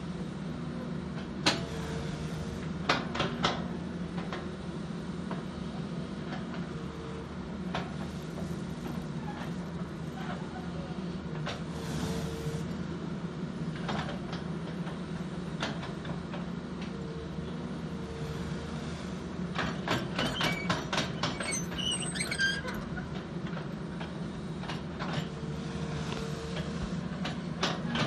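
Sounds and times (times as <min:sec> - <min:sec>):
excavator running: 0:00.0 - 0:28.0
clattering clicks and high squeaks: 0:19.9 - 0:23.2.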